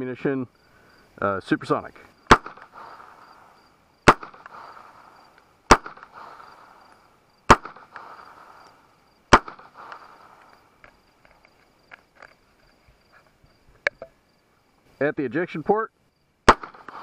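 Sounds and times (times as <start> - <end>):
gunshots with echo: 2.3 - 2.8, 4.0 - 4.7, 5.7 - 6.2, 7.5 - 8.0, 9.3 - 9.9, 16.5 - 17.0.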